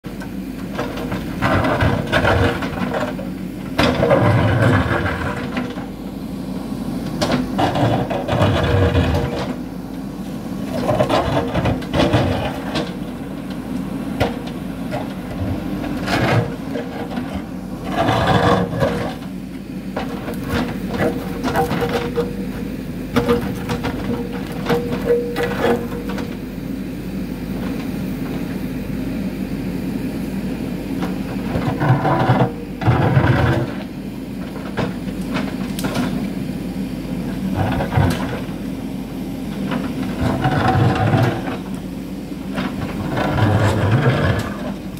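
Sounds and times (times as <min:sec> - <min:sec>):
diesel engine running: 0:00.1 - 0:44.9
bucket grinding and scraping rock: 0:15.5 - 0:19.3, 0:42.7 - 0:44.9.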